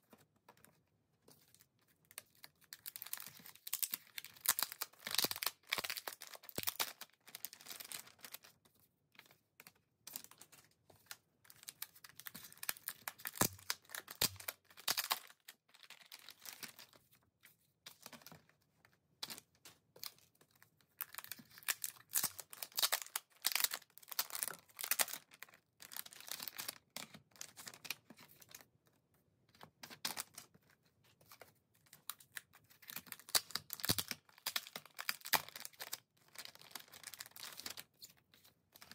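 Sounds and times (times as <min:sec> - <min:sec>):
foil pouch crinkling and tearing: 0:02.8 - 0:08.4, 0:21.0 - 0:26.7.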